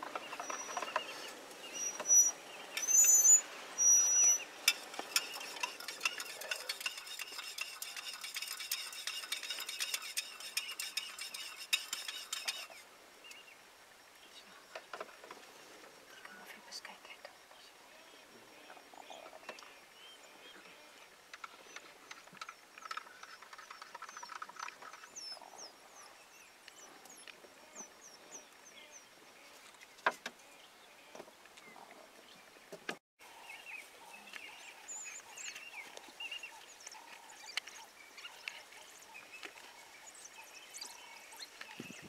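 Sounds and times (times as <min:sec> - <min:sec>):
high chirping calls: 0:00.1 - 0:13.5.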